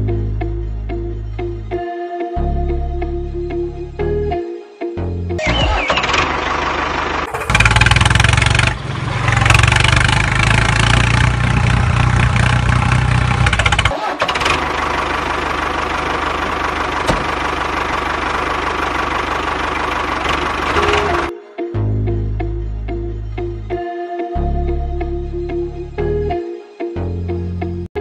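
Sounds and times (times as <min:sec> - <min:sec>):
tractor engine running: 0:05.4 - 0:21.3.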